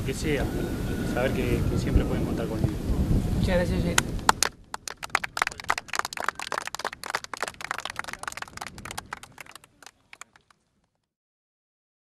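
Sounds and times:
small group clapping: 4.0 - 11.0.

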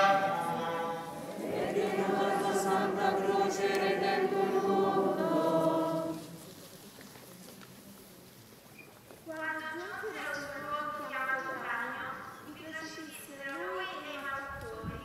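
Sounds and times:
crowd singing a hymn: 0.0 - 6.6.

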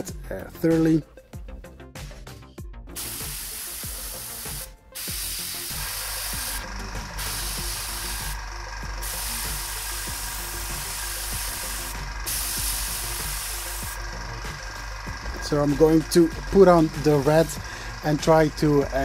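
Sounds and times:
airbrush spraying hiss: 2.9 - 8.4, 9.0 - 15.0.

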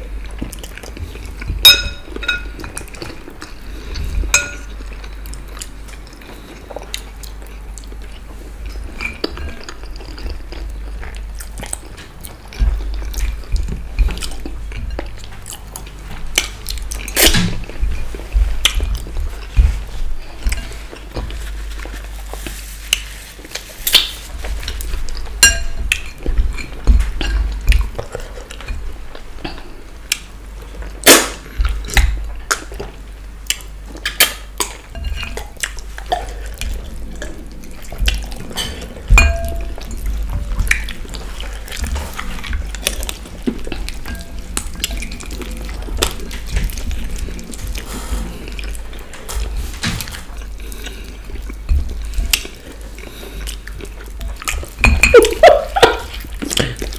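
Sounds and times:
chewing and smacking: 0.0 - 56.9
bones clinking on ceramic plates: 1.6 - 2.8, 4.4 - 4.8, 25.4 - 27.5, 38.6 - 39.8.

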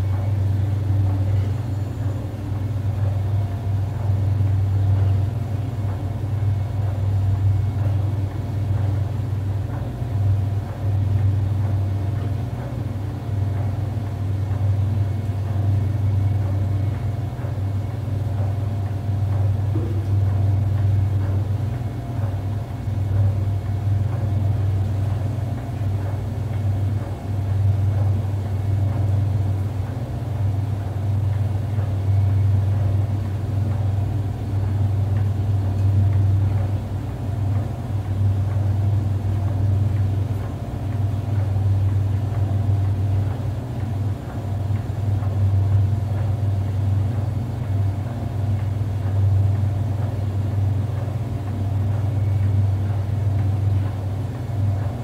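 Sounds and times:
washing machine humming: 0.0 - 55.0.

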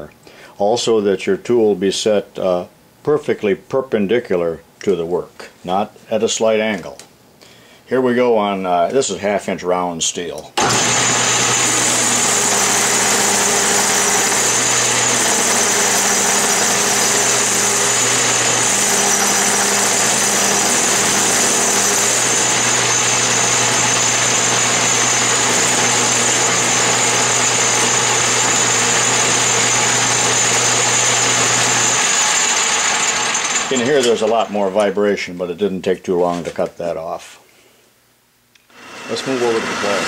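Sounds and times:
lathe cutting steel: 10.6 - 34.9, 38.7 - 40.0.

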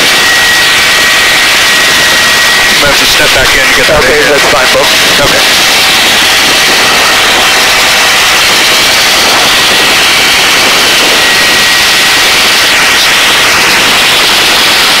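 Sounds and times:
faint steady whine: 0.0 - 15.0
helicopter hovering: 0.0 - 15.0.

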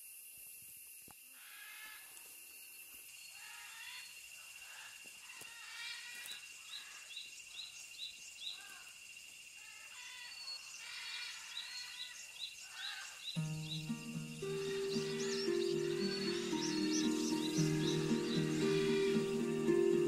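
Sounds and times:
high insect drone: 0.0 - 20.0
birds calling: 10.2 - 20.0.

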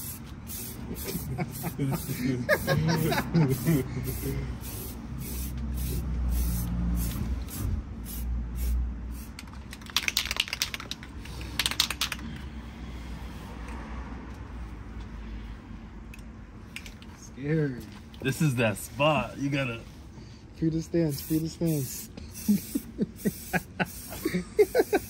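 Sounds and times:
paint spraying hiss: 0.0 - 9.4, 21.1 - 25.0.

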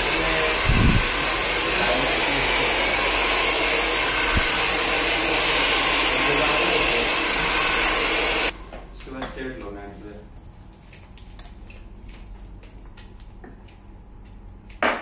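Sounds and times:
hair dryer blowing: 0.0 - 8.6.

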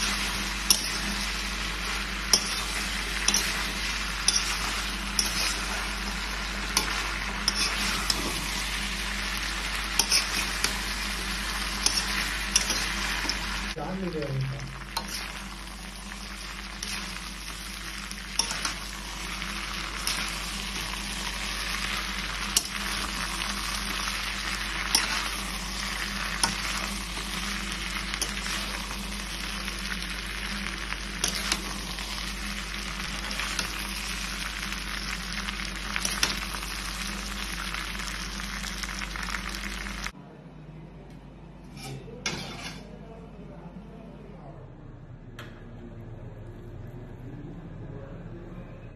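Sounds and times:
chicken sizzling in a wok: 0.0 - 40.2
metal spatula scraping a wok: 2.2 - 9.2, 9.9 - 13.6, 41.6 - 43.0.

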